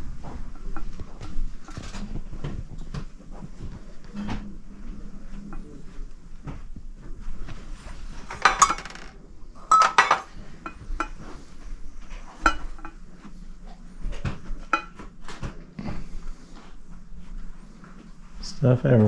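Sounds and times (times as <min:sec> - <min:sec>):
metal cups and flatware clinking: 0:08.3 - 0:11.2, 0:12.4 - 0:13.0.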